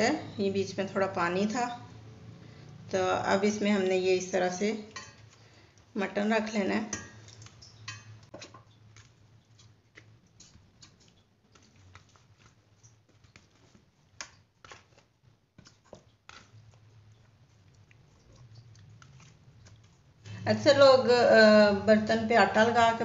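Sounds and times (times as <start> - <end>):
wet squelches of meat: 7.2 - 20.4.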